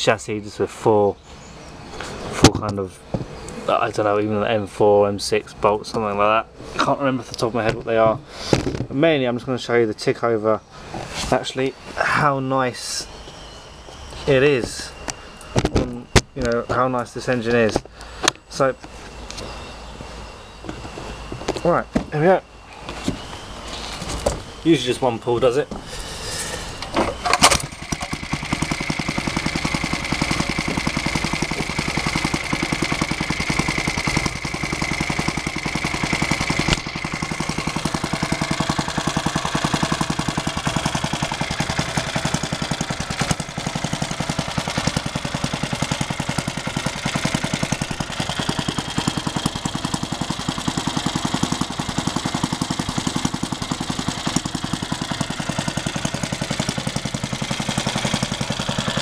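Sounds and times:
small engine idling: 0.0s - 59.0s
recoil starter pull: 25.4s - 59.0s.

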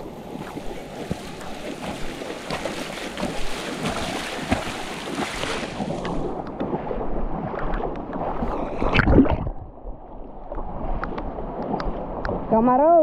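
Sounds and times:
river rushing and splashing: 0.0s - 9.5s
splashes from wading: 0.0s - 9.6s.

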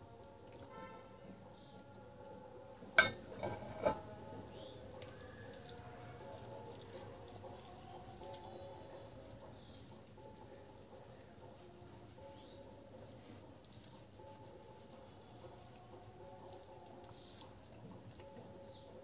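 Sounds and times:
light clinks on glass bowl: 3.0s - 4.2s
wet squishing of rice mixed by hand: 4.5s - 17.8s.

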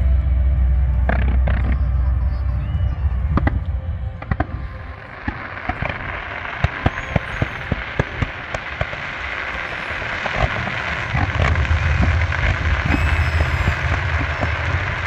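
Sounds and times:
fireworks bangs and pops: 5.1s - 15.0s.

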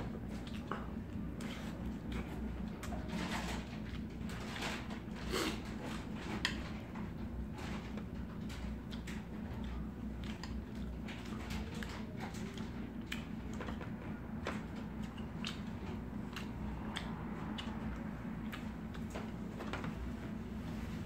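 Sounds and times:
chewing: 0.2s - 19.8s.

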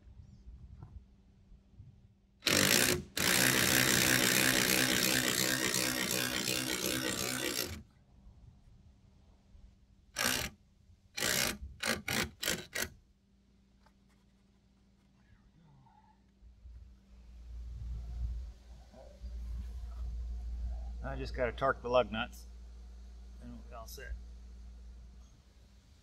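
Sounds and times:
power driver whirring: 2.4s - 7.8s, 10.2s - 10.5s, 11.2s - 12.9s.

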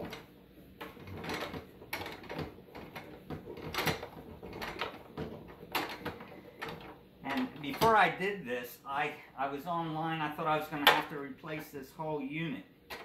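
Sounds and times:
hard plastic clicking and knocking: 0.0s - 8.0s.

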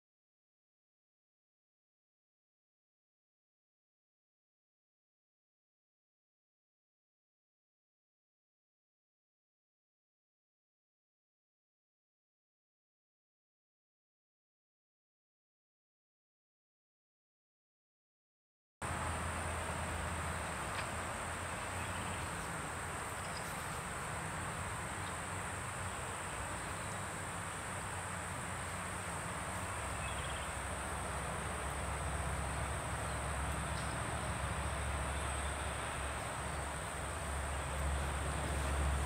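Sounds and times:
high insect trill: 20.2s - 39.0s.

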